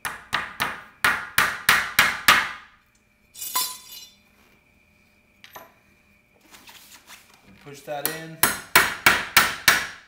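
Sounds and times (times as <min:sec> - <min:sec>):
metal clink: 0:03.4 - 0:04.2.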